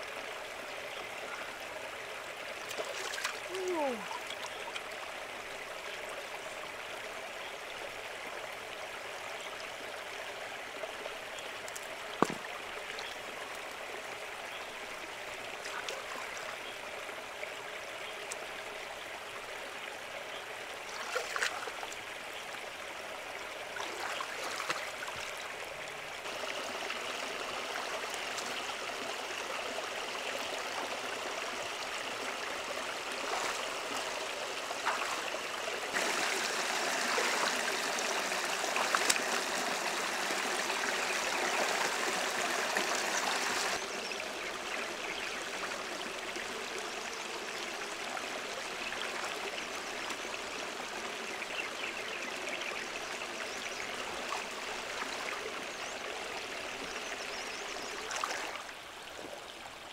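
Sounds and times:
wading splashes: 2.7s - 4.3s, 23.8s - 25.3s, 33.2s - 34.1s, 34.8s - 39.6s.

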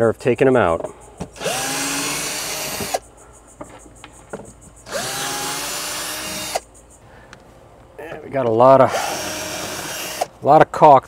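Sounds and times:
cordless drill whining: 1.4s - 3.0s, 4.9s - 6.6s, 8.9s - 10.3s
drill bit clicking on screws: 1.4s - 3.0s, 4.9s - 6.6s, 8.9s - 10.3s.

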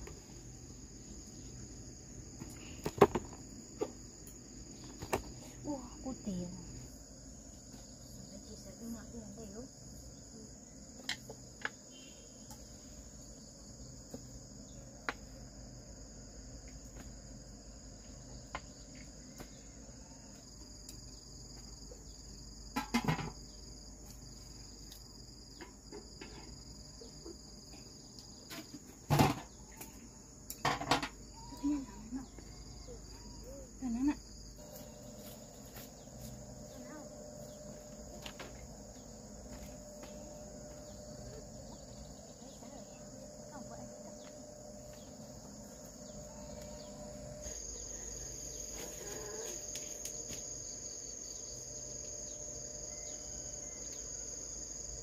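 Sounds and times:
crickets chirping: 0.0s - 55.0s.

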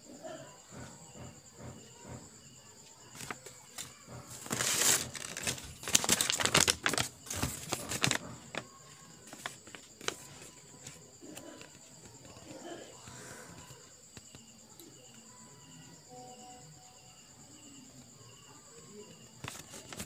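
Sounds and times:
crickets chirping: 0.0s - 20.0s
paper and plastic bag crinkling: 3.1s - 12.2s, 19.4s - 20.0s.

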